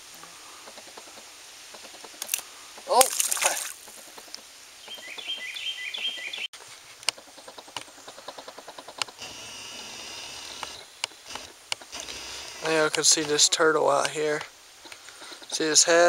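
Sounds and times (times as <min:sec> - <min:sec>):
bird chirping: 0:03.8 - 0:16.0
quickening clicks: 0:07.0 - 0:13.4
steady high buzz: 0:09.2 - 0:13.8.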